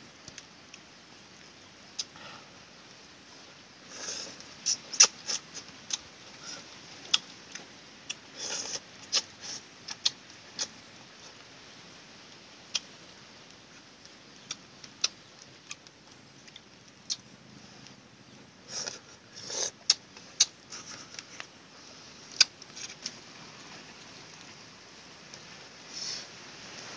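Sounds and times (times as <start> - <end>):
person chewing: 16.5 - 17.2
soup slurps: 18.7 - 19.9.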